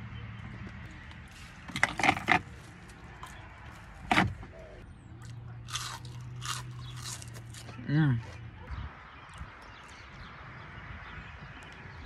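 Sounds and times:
crunching bites into bread roll: 0:05.6 - 0:07.8.

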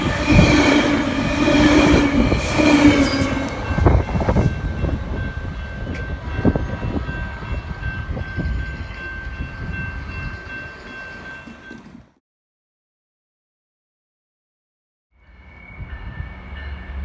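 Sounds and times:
crossing bell ringing: 0:00.0 - 0:12.2, 0:15.3 - 0:17.0
train rumbling over rails: 0:00.0 - 0:12.2, 0:15.2 - 0:17.0.

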